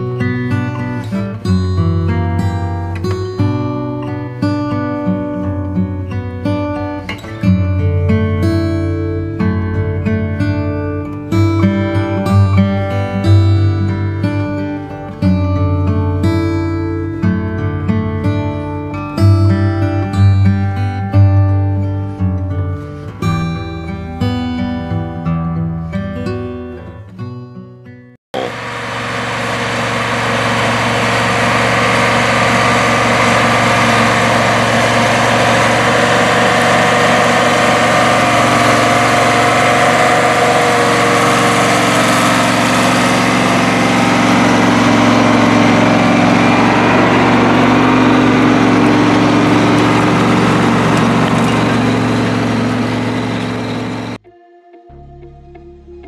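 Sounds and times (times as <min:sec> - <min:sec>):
acoustic guitar music: 0:00.0 - 0:28.5, 0:30.5 - 0:54.3
tractor diesel engine under load: 0:28.4 - 0:54.2.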